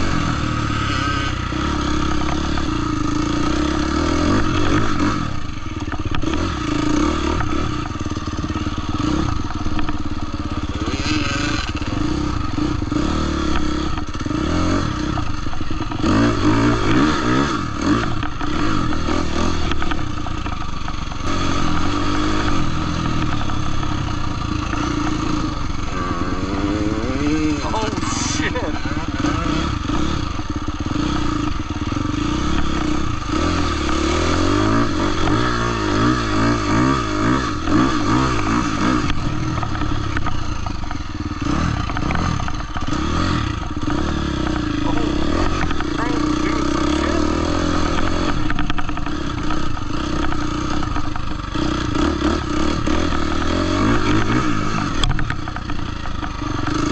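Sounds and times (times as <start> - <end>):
dirt bike engines revving: 0.0 - 56.9.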